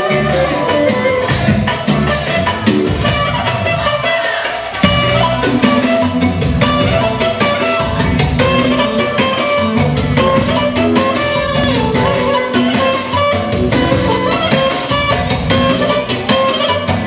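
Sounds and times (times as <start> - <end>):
plucked guitar music over beat: 4.8 - 17.0.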